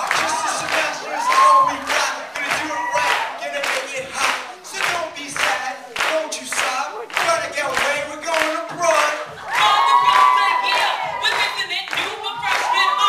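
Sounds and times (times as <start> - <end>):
voices chanting in unison: 0.0 - 6.0
hands clapping to a beat: 0.0 - 13.0.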